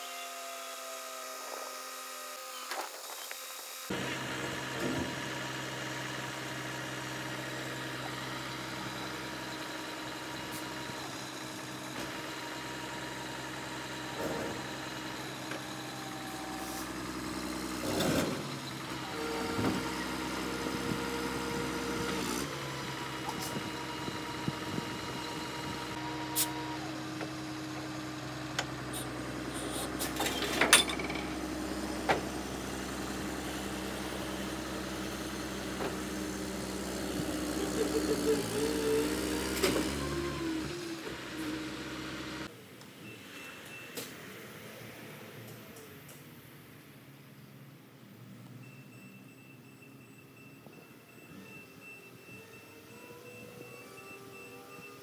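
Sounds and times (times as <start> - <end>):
diesel engine idling: 3.9 - 42.5.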